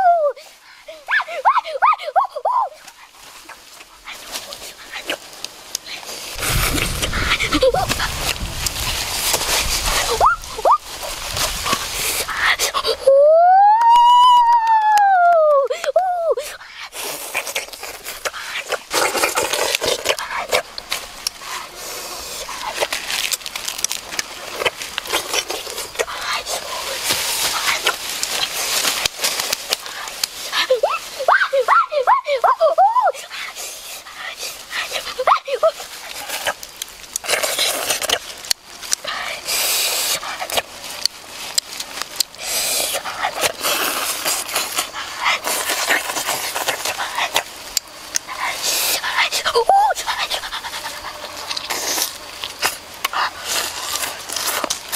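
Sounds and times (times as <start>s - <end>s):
chewing and lip smacking: 16.6s - 30.7s, 33.3s - 54.9s
person chewing chicken wings: 16.9s - 30.4s.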